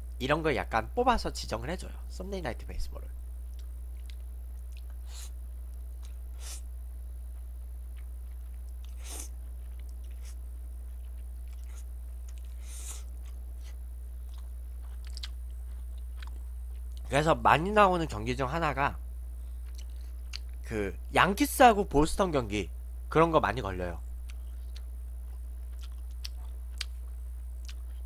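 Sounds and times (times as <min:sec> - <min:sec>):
wet chewing mouth clicks: 0:14.3 - 0:17.1, 0:24.2 - 0:28.0.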